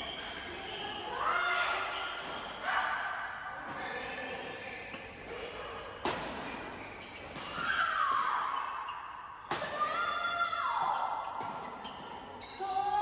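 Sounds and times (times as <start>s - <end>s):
shoes squeaking on court floor: 0.0s - 2.8s, 3.6s - 9.6s, 10.4s - 12.8s
racket hitting shuttlecock: 4.9s - 8.6s, 9.5s - 10.0s.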